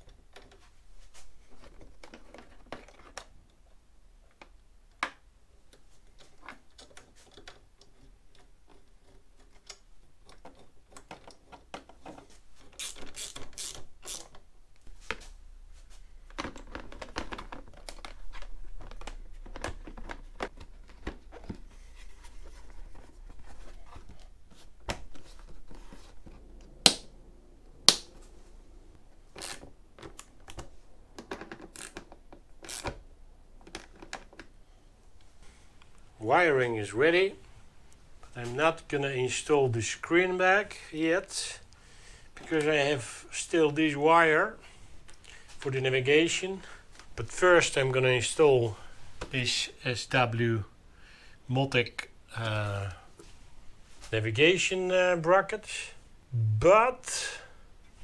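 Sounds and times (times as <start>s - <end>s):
plastic and cable rustling: 0.0s - 4.6s, 5.6s - 36.2s
small clicks and rattles: 5.6s - 14.5s.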